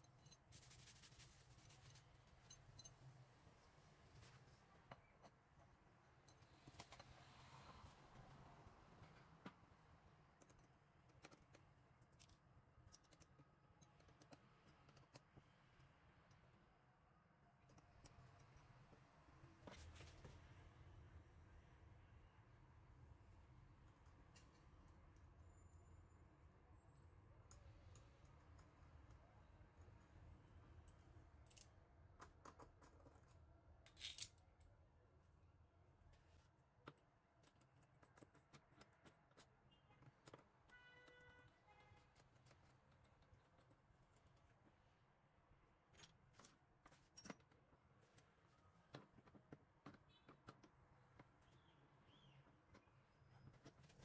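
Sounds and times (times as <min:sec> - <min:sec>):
allen key clicking on screws: 0:10.4 - 0:15.4
faint metal clicks and taps: 0:10.4 - 0:15.6, 0:17.6 - 0:19.1, 0:27.5 - 0:29.2, 0:48.9 - 0:51.6.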